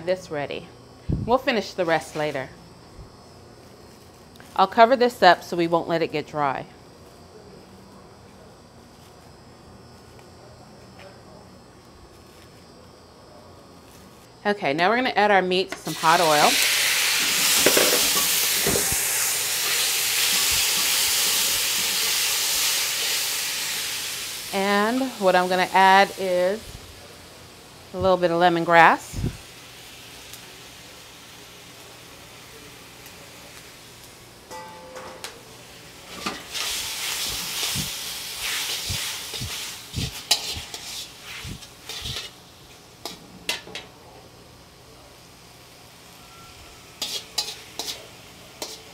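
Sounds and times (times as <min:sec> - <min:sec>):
meat sizzling in hot oil: 0:15.9 - 0:26.9, 0:36.4 - 0:43.6, 0:47.0 - 0:48.9
tongs scraping a wok: 0:36.1 - 0:43.8, 0:46.2 - 0:48.9
metal tongs clicking on wok: 0:47.0 - 0:48.0.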